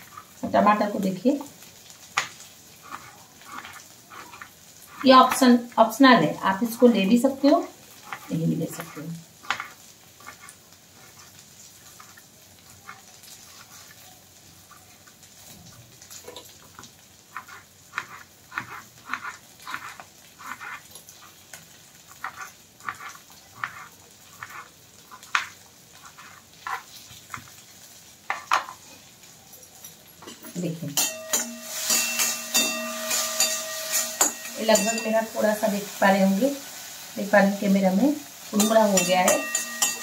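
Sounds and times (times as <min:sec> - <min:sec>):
faint sizzle of frying: 0:00.0 - 0:40.0
knife cutting on wooden board: 0:02.8 - 0:05.1, 0:17.4 - 0:20.8, 0:22.2 - 0:27.4.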